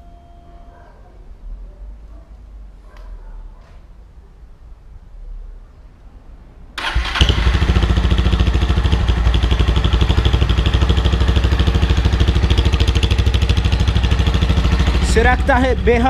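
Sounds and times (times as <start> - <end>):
motorcycle engine starting and idling: 6.8 - 16.0.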